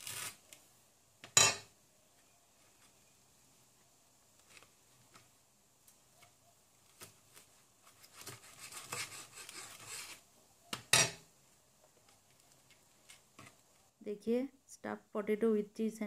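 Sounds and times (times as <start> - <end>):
knife sawing through crisp sandwich: 7.9 - 10.2.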